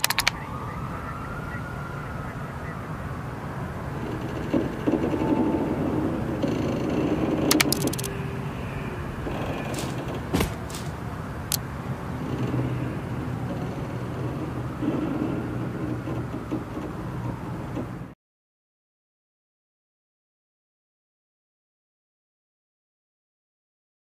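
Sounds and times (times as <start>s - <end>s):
sharp clicks: 0.0s - 0.4s, 6.4s - 8.1s
low rumble of vehicles: 0.0s - 18.2s.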